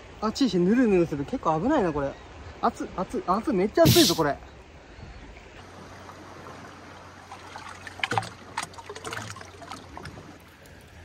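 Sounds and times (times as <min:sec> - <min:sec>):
water trickling and lapping: 0:00.2 - 0:11.0
small water splashes: 0:05.4 - 0:11.0.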